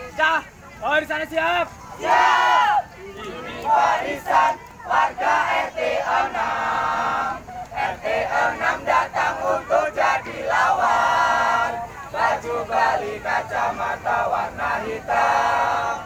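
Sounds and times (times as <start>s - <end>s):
group chanting and shouting: 0.0s - 16.0s.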